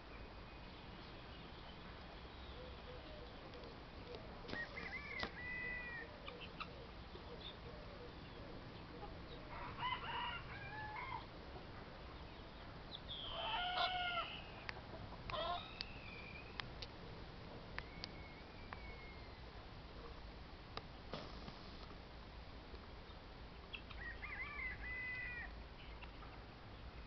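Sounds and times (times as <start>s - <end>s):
rooster crowing: 4.6s - 6.1s, 9.5s - 11.3s, 13.3s - 14.4s, 24.0s - 25.5s
poultry calling: 13.2s - 15.9s.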